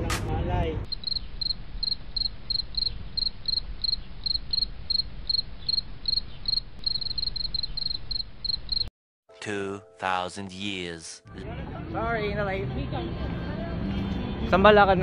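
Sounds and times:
cricket chirping: 0:00.9 - 0:08.9.

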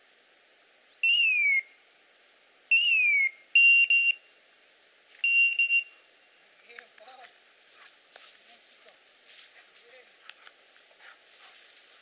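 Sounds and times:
short electronic beeps: 0:05.2 - 0:06.0.

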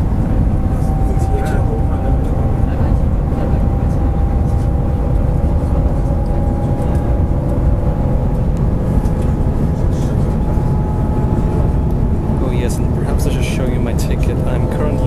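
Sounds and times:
faint whine: 0:00.0 - 0:15.0
train rumble and rush: 0:00.0 - 0:15.0.

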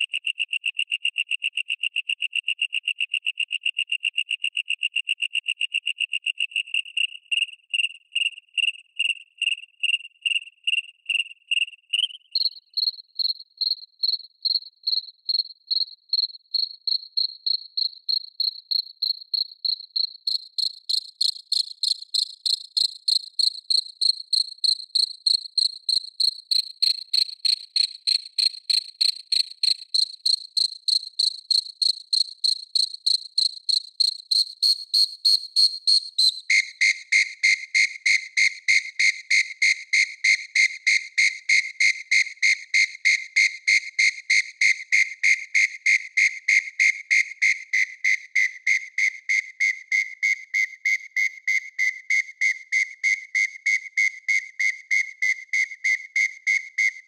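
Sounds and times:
synthesized cricket chirps: 0:04.6 - 0:57.0.

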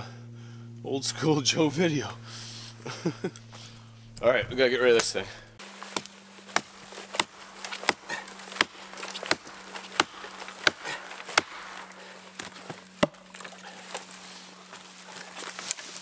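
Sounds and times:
faint steady hum: 0:00.0 - 0:16.0
axe chopping a log: 0:05.6 - 0:13.6.

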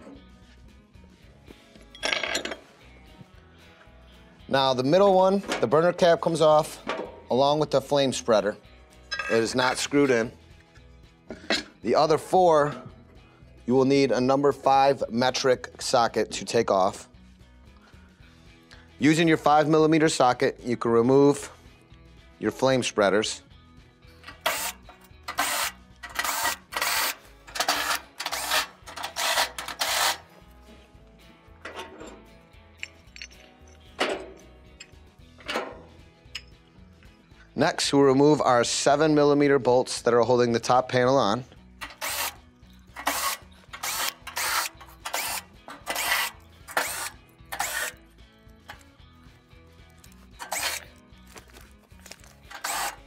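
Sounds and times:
cordless drill bursts: 0:24.4 - 0:24.8, 0:25.4 - 0:30.2, 0:41.9 - 0:42.4, 0:43.0 - 0:48.0, 0:50.4 - 0:50.8, 0:52.5 - 0:53.0.

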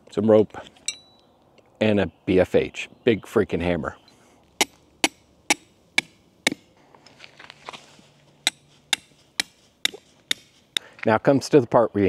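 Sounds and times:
sledgehammer striking tent stake: 0:04.6 - 0:06.7, 0:08.4 - 0:10.6.

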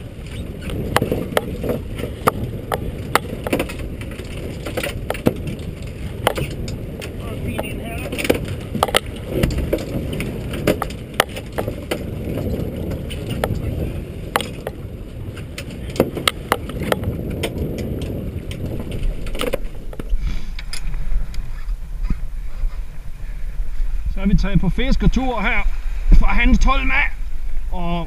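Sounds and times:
fish and tackle clattering on boat deck: 0:00.0 - 0:20.9
wind and sea rumble: 0:00.0 - 0:28.0.

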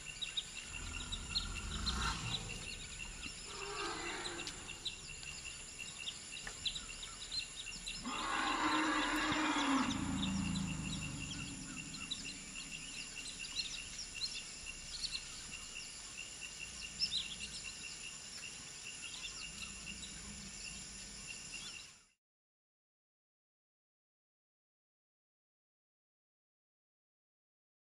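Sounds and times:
birds chirping: 0:00.0 - 0:22.1
insects buzzing: 0:00.0 - 0:22.1
elephant call: 0:00.6 - 0:05.1, 0:08.0 - 0:13.9.

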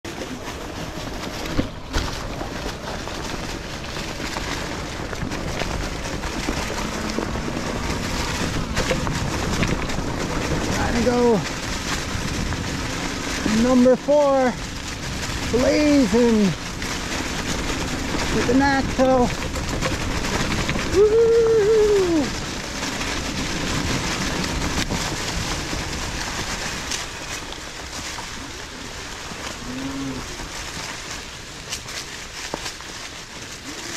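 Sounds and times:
bike tyres rolling over leaves: 0:00.0 - 0:33.9
wind on microphone: 0:03.2 - 0:27.4.

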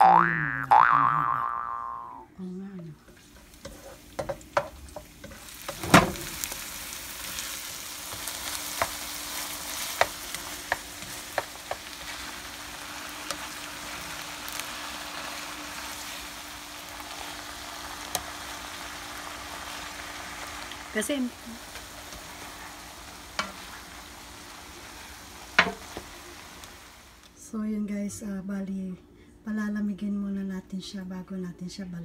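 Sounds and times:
vegetables sizzling in a wok: 0:02.7 - 0:27.4.

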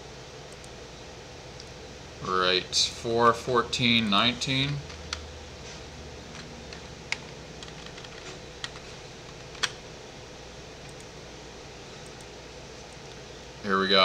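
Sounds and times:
steady low hum: 0:00.0 - 0:14.0
keyboard and mouse clicks: 0:06.3 - 0:09.8, 0:10.8 - 0:11.1.

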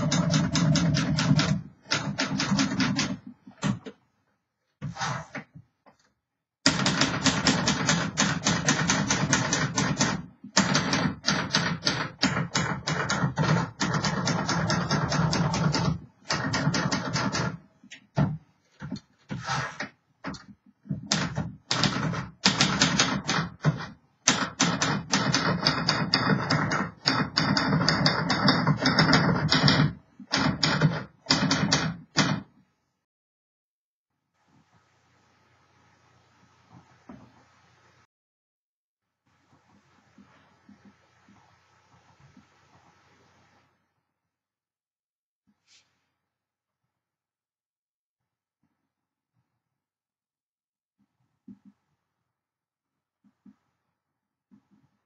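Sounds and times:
manual typewriter typing: 0:00.0 - 0:03.8, 0:06.7 - 0:17.6, 0:21.0 - 0:32.5.

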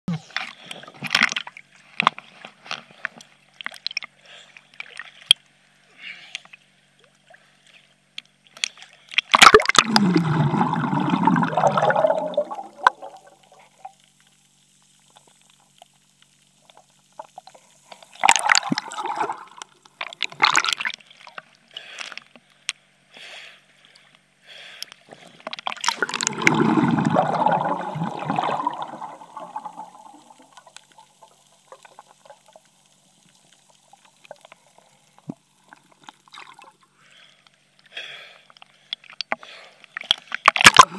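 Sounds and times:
water splashing and gurgling: 0:08.6 - 0:14.2, 0:15.0 - 0:22.1, 0:25.1 - 0:37.3, 0:38.9 - 0:40.9.

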